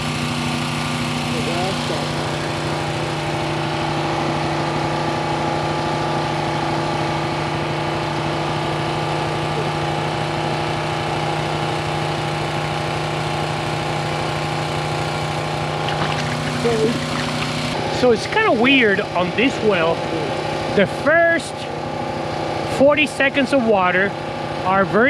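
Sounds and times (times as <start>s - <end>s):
engine running steadily: 0.0s - 25.0s
water gushing from a pipe: 14.6s - 20.8s.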